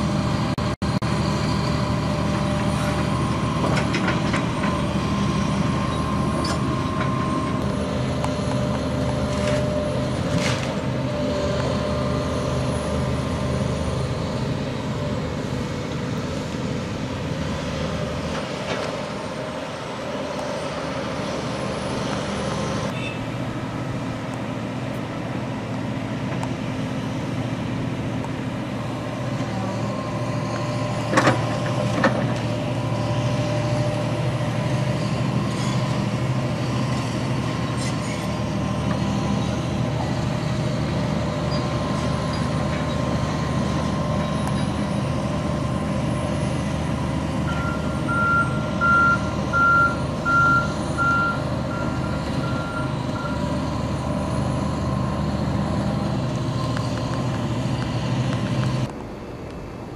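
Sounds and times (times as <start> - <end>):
excavator diesel engine running: 0.0 - 59.9
travel alarm beeping: 47.4 - 53.6.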